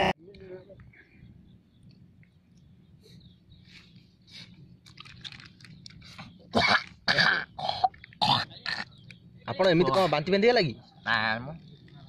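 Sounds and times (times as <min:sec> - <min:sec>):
plastic crinkling: 0:04.8 - 0:06.0.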